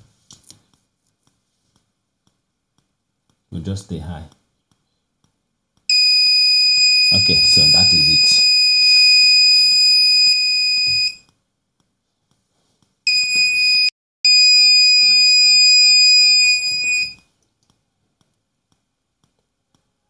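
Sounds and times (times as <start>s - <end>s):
high-pitched buzzer tone: 5.9s - 11.2s, 13.1s - 17.2s.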